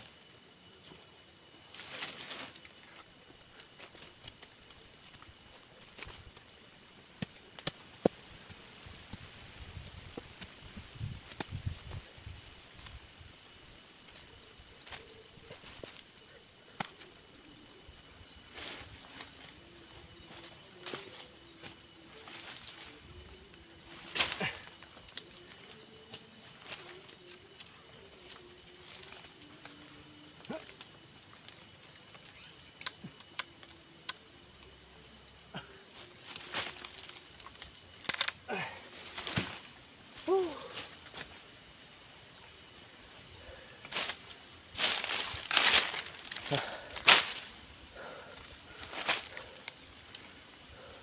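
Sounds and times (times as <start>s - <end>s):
insect chorus: 0.0s - 51.0s.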